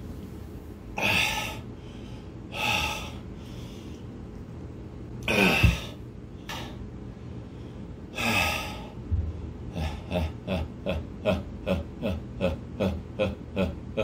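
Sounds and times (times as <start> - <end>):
man gasping and panting: 8.2 - 10.4.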